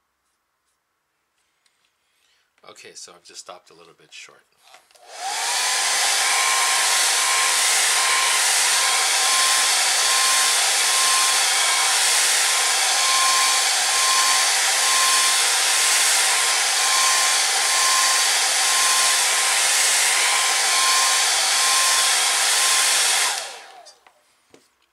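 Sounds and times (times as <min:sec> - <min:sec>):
hair dryer blowing: 0:05.0 - 0:24.2.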